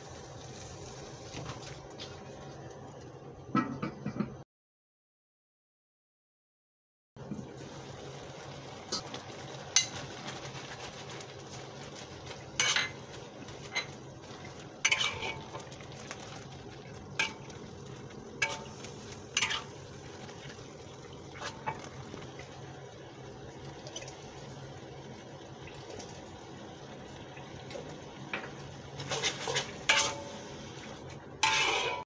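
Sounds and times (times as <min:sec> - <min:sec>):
vegetables frying hiss: 0:00.0 - 0:01.8, 0:07.4 - 0:32.0
metal spatula scraping a wok: 0:12.6 - 0:13.0, 0:14.8 - 0:15.6, 0:18.4 - 0:19.8, 0:29.0 - 0:30.8, 0:31.4 - 0:32.0.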